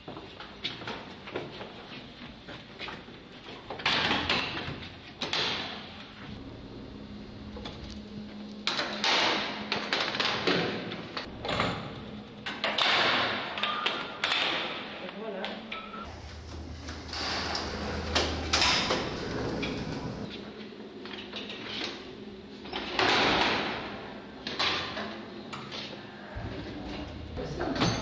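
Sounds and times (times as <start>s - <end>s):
lift gates rattling and clattering: 15.8s - 20.3s.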